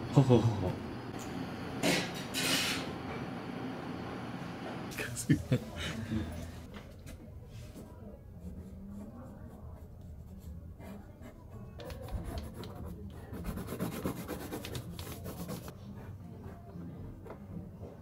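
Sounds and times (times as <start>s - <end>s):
pencil scratching on paper: 7.7s - 16.9s.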